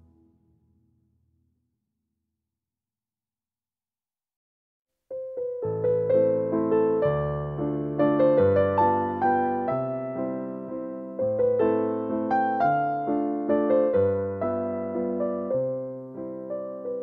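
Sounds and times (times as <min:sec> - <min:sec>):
gentle piano melody: 0:05.1 - 0:17.0.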